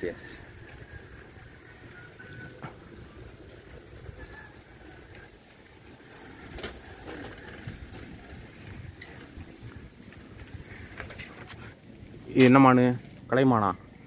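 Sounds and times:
bicycle rumbling on rough path: 0:00.0 - 0:14.0
bike clicks and knocks: 0:02.2 - 0:03.7, 0:06.1 - 0:11.7.

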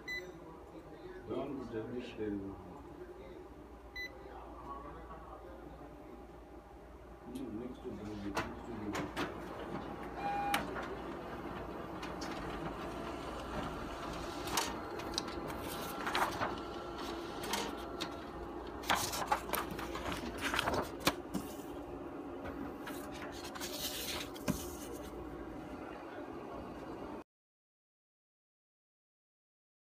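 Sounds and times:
copier humming: 0:00.0 - 0:27.2
paper rustling and clicks: 0:10.6 - 0:21.7, 0:22.5 - 0:25.2.

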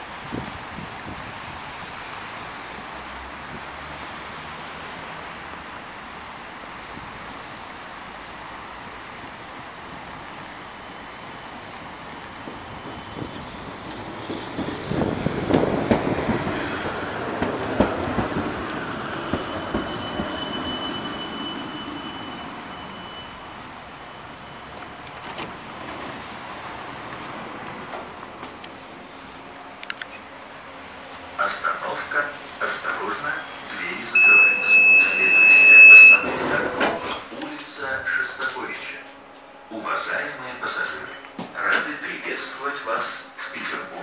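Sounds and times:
high steady tram whine: 0:00.0 - 0:44.0
tram wheels rumbling on rails: 0:00.0 - 0:44.0.

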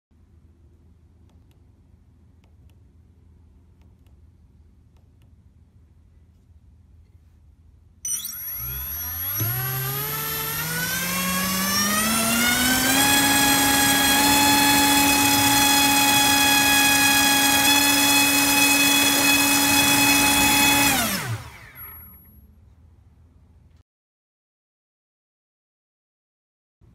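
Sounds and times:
electric motor propeller whine: 0:08.1 - 0:22.3.

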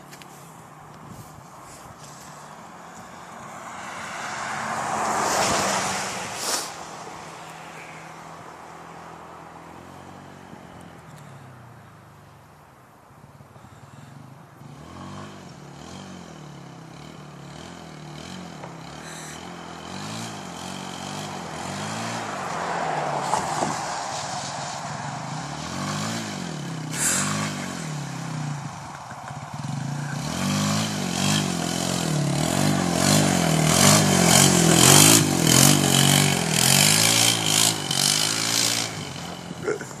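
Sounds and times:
quad bike engine revving: 0:13.6 - 0:22.6, 0:25.0 - 0:40.0.

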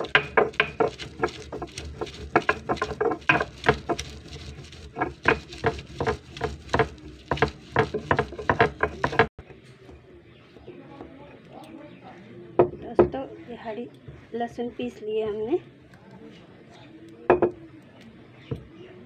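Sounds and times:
stone knocking and grinding on stone: 0:00.0 - 0:10.0, 0:17.3 - 0:17.6.

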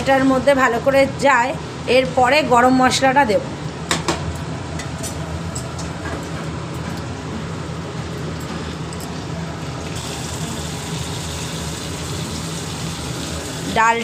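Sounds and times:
lentils boiling in a pot: 0:10.0 - 0:14.0.

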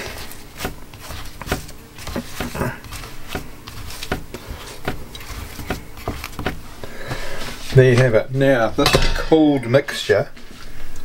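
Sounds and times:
pastry rustling: 0:00.0 - 0:08.8.

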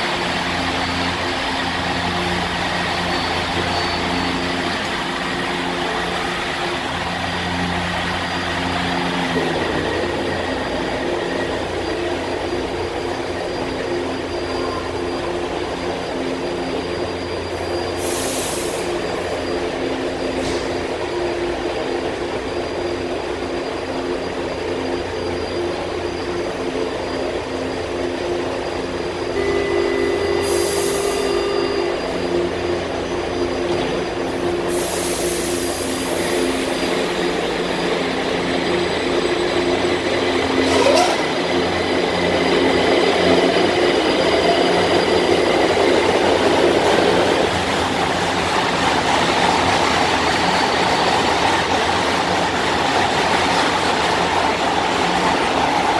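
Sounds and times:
train equipment hum: 0:00.0 - 0:55.9
air hisses: 0:18.0 - 0:19.0, 0:34.6 - 0:37.5
door warning tone: 0:29.3 - 0:34.2.

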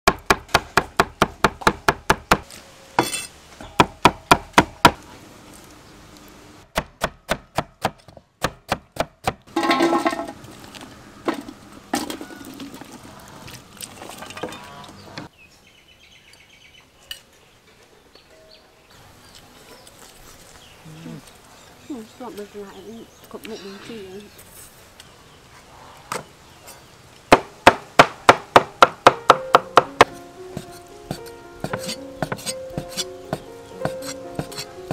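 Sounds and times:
cleaver chopping on wooden board: 0:00.0 - 0:03.1, 0:03.7 - 0:05.0, 0:06.7 - 0:09.4, 0:27.3 - 0:34.7.

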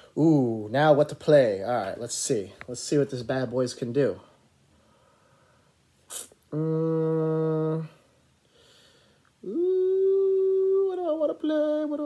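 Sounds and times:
man humming: 0:06.1 - 0:08.2, 0:09.4 - 0:12.0.

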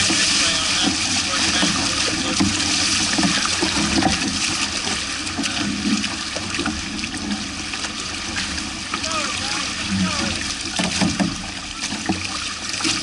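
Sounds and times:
water rushing past hulls: 0:00.0 - 0:13.0.

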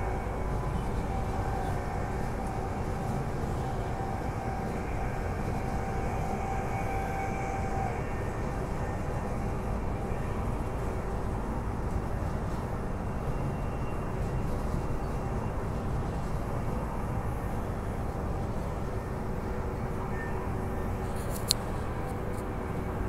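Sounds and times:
thin steady whine: 0:00.0 - 0:23.0
train running noise inside carriage: 0:00.0 - 0:23.0.

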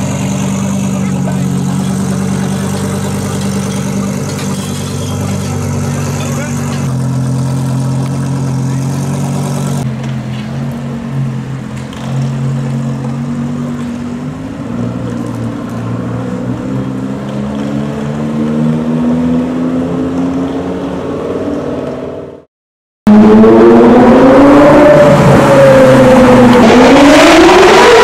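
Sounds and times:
sports car engine idling: 0:00.0 - 0:16.3
car pulling away: 0:00.0 - 0:22.4, 0:23.1 - 0:28.0.

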